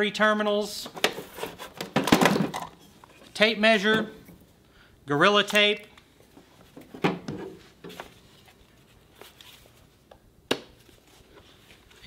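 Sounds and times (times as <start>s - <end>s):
items clattering in plastic toolbox: 0.8s - 2.8s.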